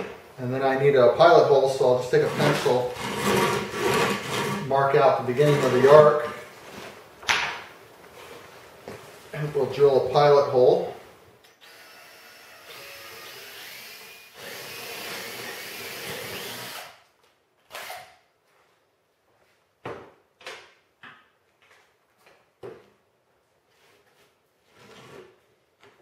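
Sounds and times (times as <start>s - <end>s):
cordless drill boring plywood: 11.6s - 17.0s.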